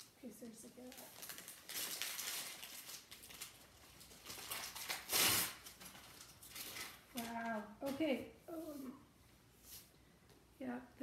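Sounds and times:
paper packaging rustling: 0.6s - 8.2s.

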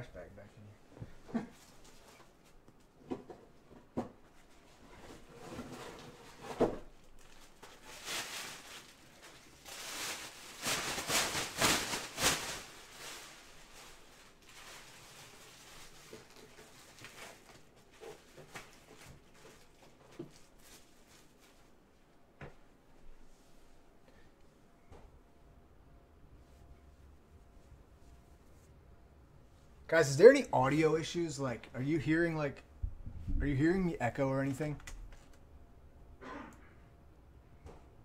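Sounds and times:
plastic rustling: 5.0s - 22.0s.

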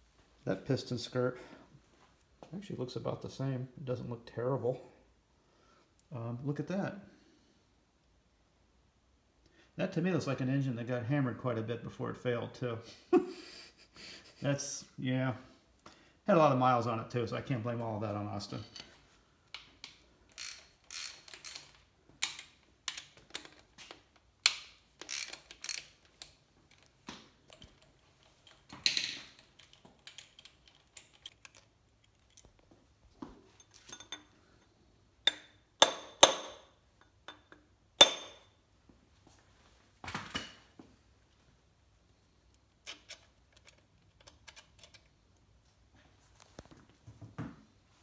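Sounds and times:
hand tools clicking on metal: 19.6s - 32.5s
ringing metal clinks: 38.0s - 38.5s.

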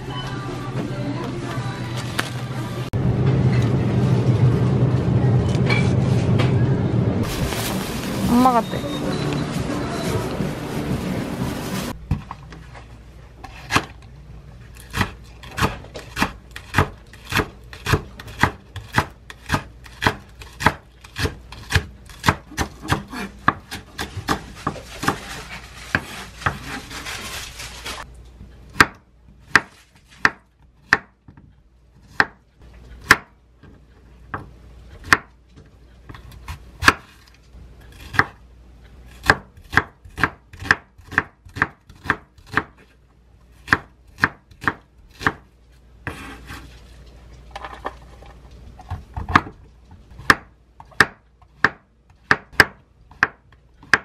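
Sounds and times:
knife chopping on wooden board: 14.9s - 25.2s, 28.8s - 31.2s, 39.2s - 42.9s, 43.6s - 45.4s, 50.2s - 54.0s.

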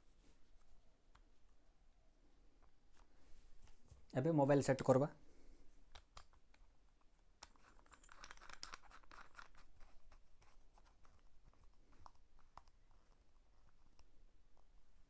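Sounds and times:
small plastic clicks: 5.9s - 14.7s.

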